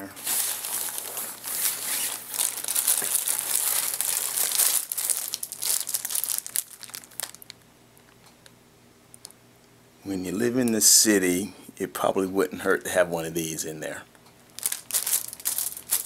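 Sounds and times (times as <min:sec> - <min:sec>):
plastic wrap crinkling: 0:00.1 - 0:08.1, 0:14.5 - 0:16.0.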